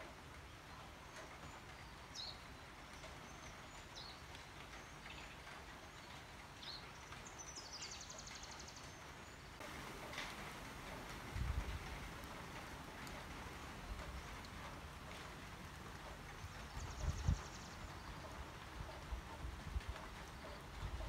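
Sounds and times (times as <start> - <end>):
rain hissing: 8.9 - 21.0
birds chirping: 13.0 - 19.2.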